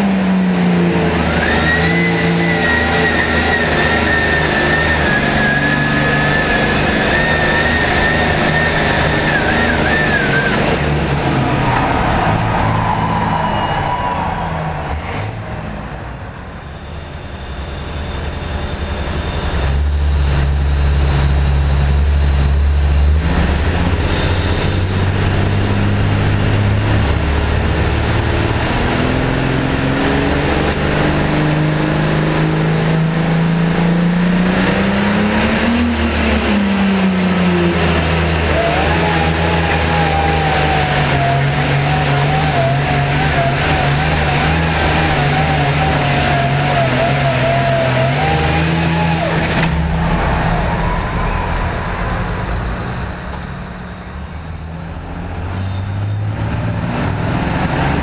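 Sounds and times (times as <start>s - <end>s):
diesel tractor engine running hard: 0.0s - 58.0s
wavering high whistle: 1.2s - 10.8s, 12.7s - 14.8s.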